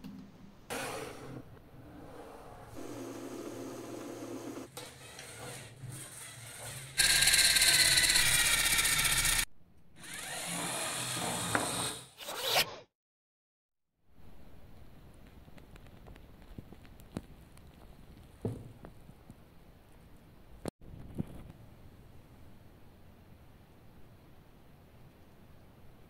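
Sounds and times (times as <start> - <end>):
small electric motors whirring: 4.7 - 12.7.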